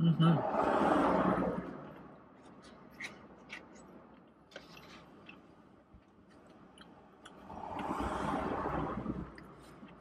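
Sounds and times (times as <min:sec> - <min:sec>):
car passing outside: 0:00.3 - 0:02.3, 0:07.1 - 0:10.0.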